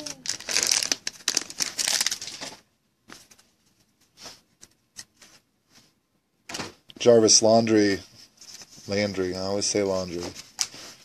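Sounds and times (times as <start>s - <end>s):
wrapper crinkling and tearing: 0.0s - 2.7s.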